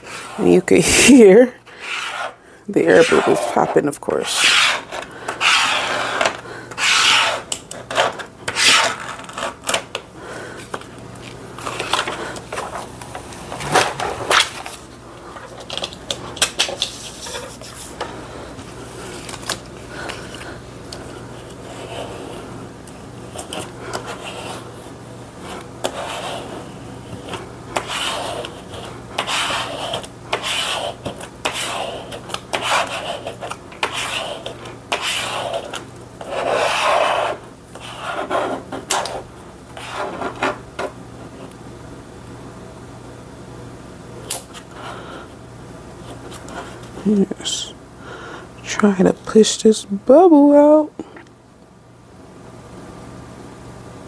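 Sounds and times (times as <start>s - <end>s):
scraper rubbing over laminate film: 1.7s - 9.8s, 25.4s - 40.6s.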